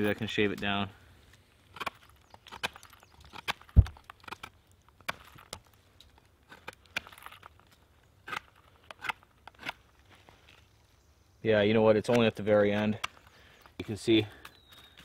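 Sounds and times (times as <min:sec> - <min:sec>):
knife scraping wood: 0:08.2 - 0:09.8.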